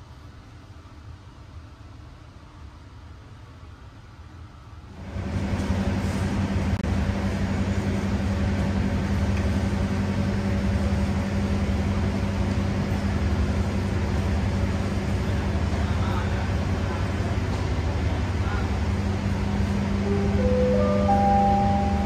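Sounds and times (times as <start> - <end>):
diesel locomotive engine idling: 4.8 - 22.0.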